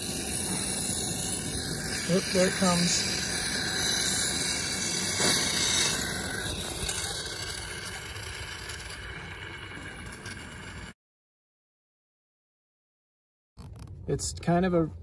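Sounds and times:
fuel pressure hissing: 0:00.0 - 0:10.9.

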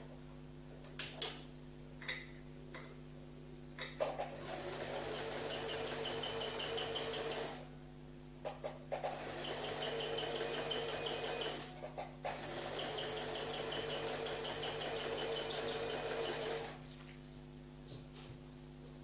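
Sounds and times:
sewing machine stitching: 0:04.0 - 0:07.6, 0:08.9 - 0:16.8.

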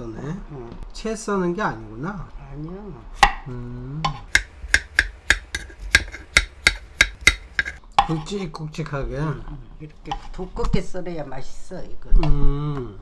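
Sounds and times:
knife chopping on wooden board: 0:04.1 - 0:08.2.

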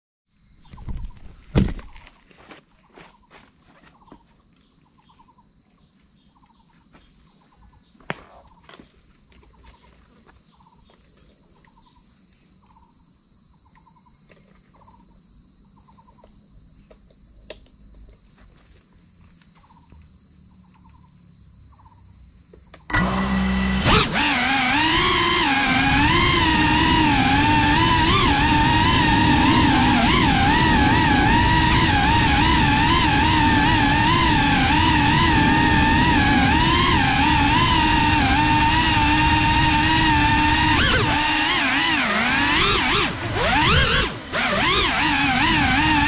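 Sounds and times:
buzzy insect chirp: 0:00.3 - 0:22.9
insect high trill: 0:11.6 - 0:23.8.

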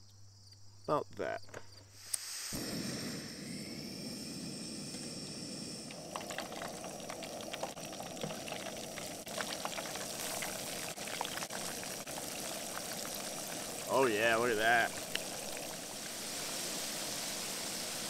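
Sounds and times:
fish deep-frying in hot oil: 0:05.8 - 0:18.0
crackles and pops of frying oil: 0:05.9 - 0:18.0.

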